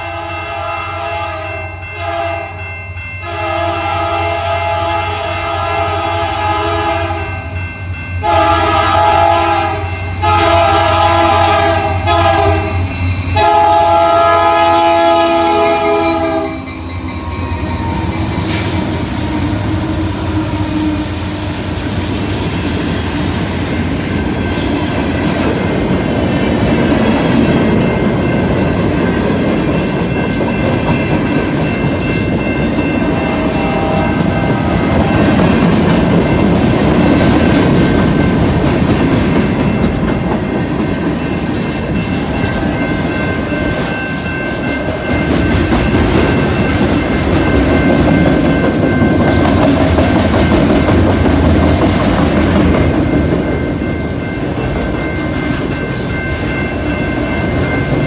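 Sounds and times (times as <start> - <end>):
locomotive air horn: 0.0 - 2.6, 3.2 - 7.5, 8.2 - 16.7, 33.2 - 35.2
train wheels clattering on rails: 10.0 - 58.0.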